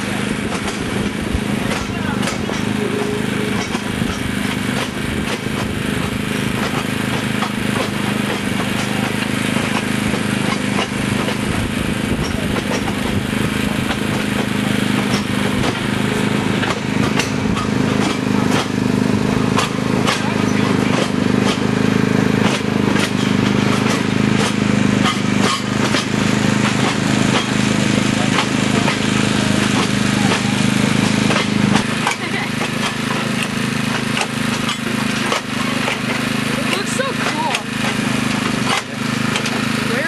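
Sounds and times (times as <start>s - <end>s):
diesel locomotive engine: 0.0s - 40.0s
wheels clicking on rails: 0.0s - 40.0s.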